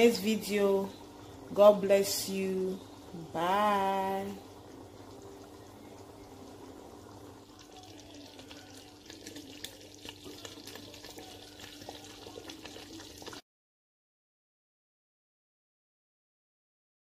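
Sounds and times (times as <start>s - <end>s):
steady low hum: 0.0s - 7.6s
stew simmering with bubbles popping: 0.0s - 13.4s
oil crackling: 7.0s - 13.4s.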